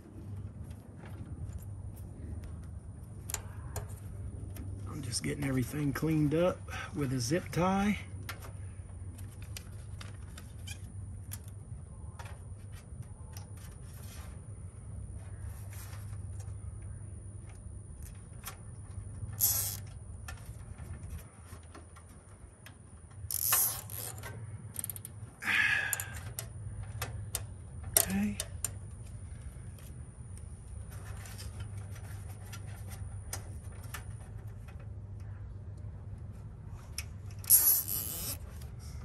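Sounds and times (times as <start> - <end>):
small clicks and handling noise: 8.1 - 39.0
zip ties zipping: 19.4 - 19.8, 23.3 - 24.2, 37.5 - 38.4.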